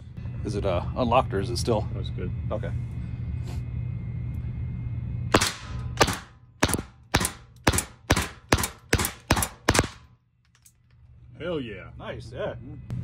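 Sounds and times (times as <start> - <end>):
steady low hum: 0.0 - 13.0
suppressed pistol shots: 5.3 - 10.1.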